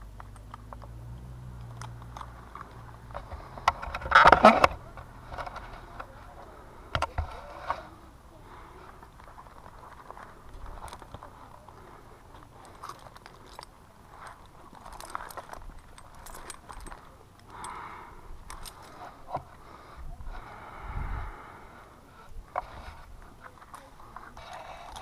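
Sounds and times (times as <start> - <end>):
carabiners clicking and rattling: 0.0 - 8.0, 8.8 - 19.7, 22.5 - 25.0
rope and gloves rustling: 0.2 - 17.8.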